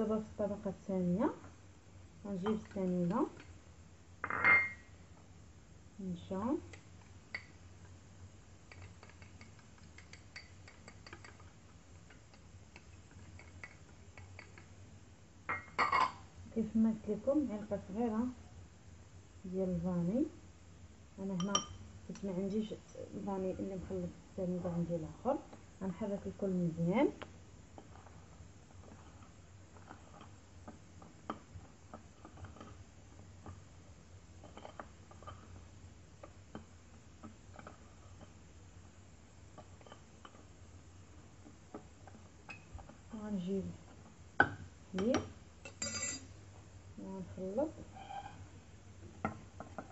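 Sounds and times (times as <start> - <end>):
steady low hum: 0.0 - 49.9
dishes clicking and tapping: 4.2 - 4.9, 6.7 - 7.6, 8.6 - 14.7, 15.5 - 16.2, 21.4 - 22.3, 41.7 - 43.0, 44.4 - 46.3
spoon scraping ceramic bowl: 45.0 - 46.3.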